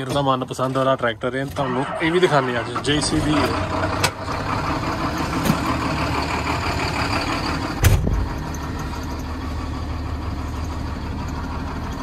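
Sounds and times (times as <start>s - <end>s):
tractor engine running: 0.0s - 12.0s
heavy thump: 7.8s - 8.3s.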